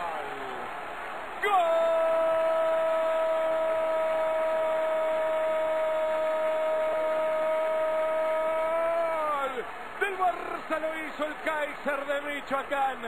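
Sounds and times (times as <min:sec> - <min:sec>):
crowd noise: 0:00.0 - 0:13.0.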